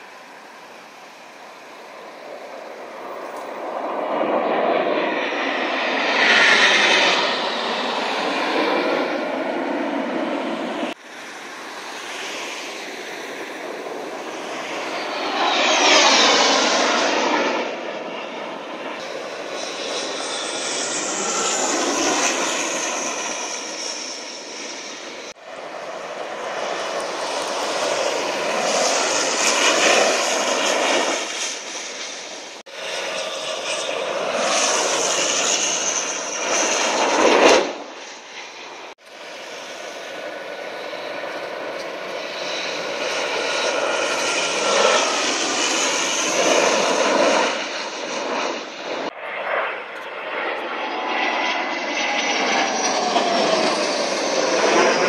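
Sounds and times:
jet aircraft passing overhead: 0:00.0 - 0:55.0.

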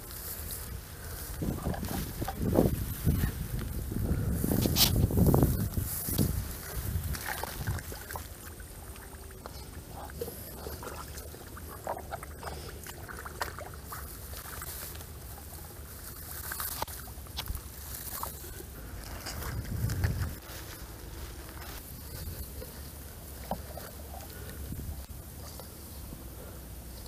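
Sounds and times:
mud squelching: 0:00.0 - 0:27.0
small water splashes: 0:07.0 - 0:15.5.

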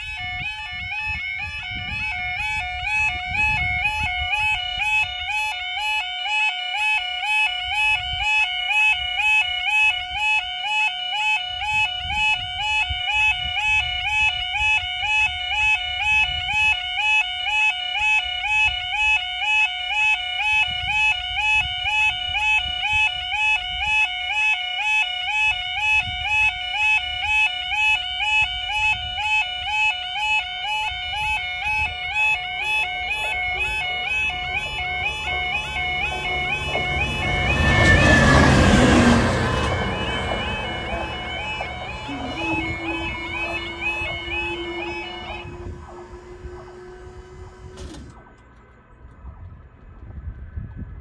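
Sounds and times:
warbling level crossing alarm: 0:00.0 - 0:48.4
diesel engine rumbling: 0:28.1 - 0:49.9.

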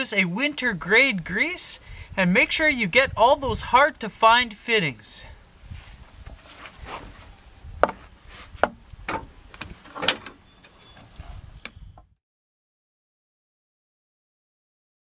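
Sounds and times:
rubbing on wooden pallet: 0:06.2 - 0:07.3.

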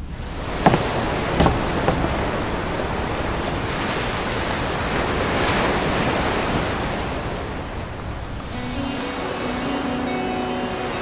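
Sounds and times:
ocean surf rushing: 0:00.4 - 0:11.0.

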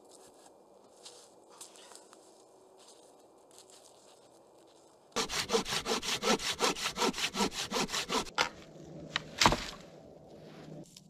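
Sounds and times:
hand saw cutting log: 0:05.2 - 0:08.4.

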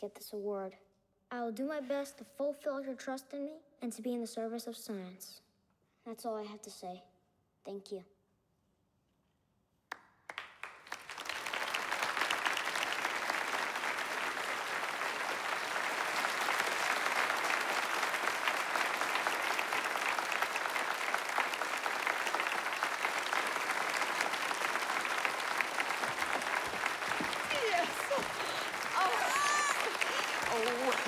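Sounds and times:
audience applauding: 0:10.3 - 0:31.0.

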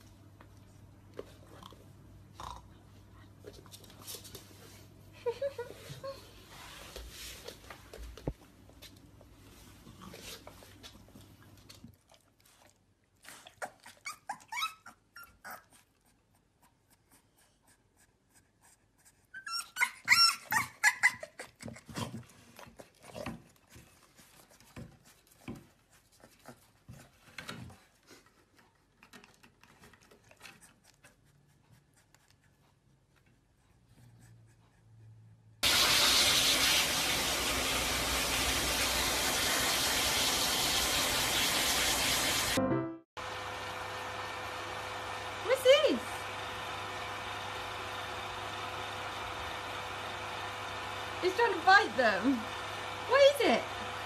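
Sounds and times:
puppy whining: 0:13.2 - 0:17.8, 0:19.0 - 0:23.6
puppy yipping: 0:13.3 - 0:15.9, 0:19.3 - 0:21.9.

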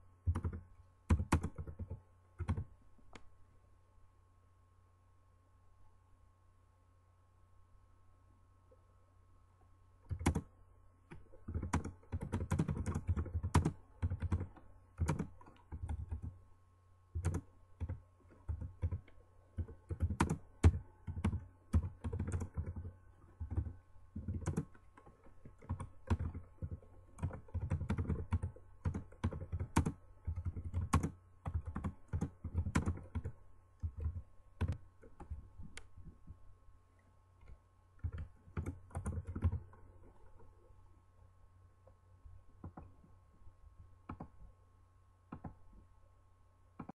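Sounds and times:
typing on computer keyboard: 0:00.2 - 0:02.7, 0:10.1 - 0:10.5, 0:11.1 - 0:16.4, 0:17.2 - 0:35.4, 0:38.0 - 0:39.7, 0:44.1 - 0:44.3, 0:45.3 - 0:45.6.

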